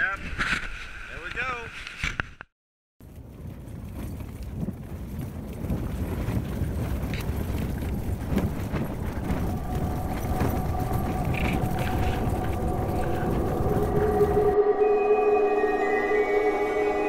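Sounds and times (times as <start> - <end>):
tent fabric flapping: 3.0 - 14.6
low rumble: 7.2 - 17.0
quiet music with held notes: 10.2 - 17.0.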